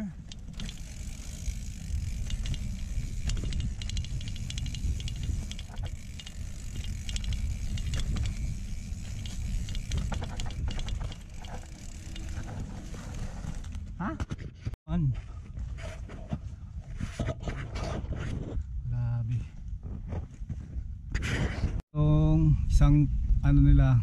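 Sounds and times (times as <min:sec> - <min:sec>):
bike freehub ticking: 0:00.0 - 0:13.9
bike chain and frame rattle: 0:00.0 - 0:14.1
low rumble of wind: 0:00.0 - 0:24.0.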